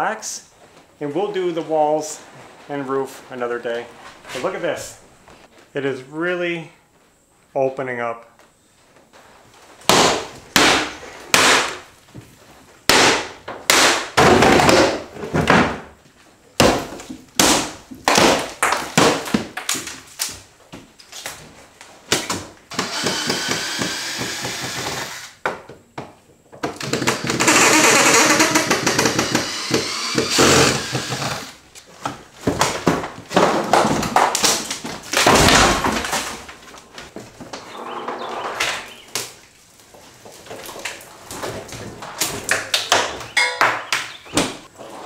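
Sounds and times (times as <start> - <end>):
wood cracking: 26.7 - 31.6, 32.5 - 37.7.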